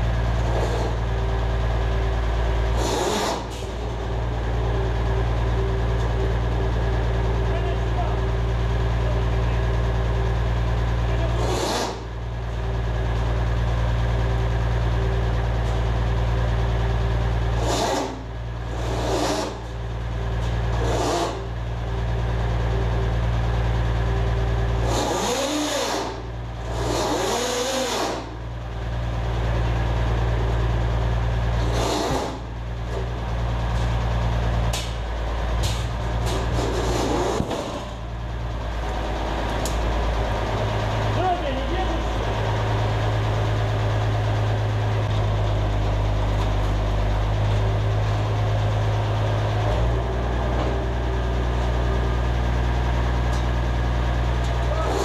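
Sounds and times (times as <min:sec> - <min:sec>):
truck engine running under load: 0:00.0 - 0:55.0
hydraulic whines: 0:02.6 - 0:07.0, 0:11.1 - 0:12.6, 0:17.4 - 0:23.2, 0:24.4 - 0:28.5, 0:31.4 - 0:33.1, 0:34.7 - 0:38.2, 0:54.4 - 0:55.0.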